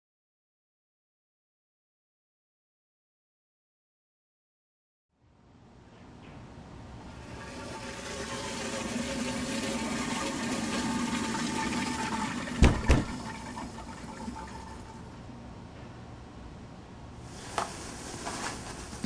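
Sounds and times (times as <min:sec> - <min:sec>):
toilet flushing: 0:07.0 - 0:15.2
sharp knocks: 0:12.6 - 0:13.2
cistern filling hiss: 0:17.2 - 0:19.0.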